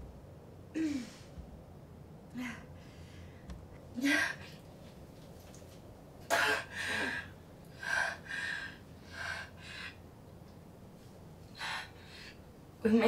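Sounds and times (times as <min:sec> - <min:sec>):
woman breathing hard: 0:06.3 - 0:10.1, 0:11.5 - 0:12.5.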